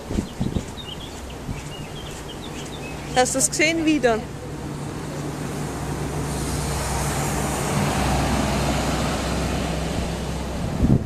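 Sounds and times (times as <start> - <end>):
vehicle passing on road: 0.0 - 11.0.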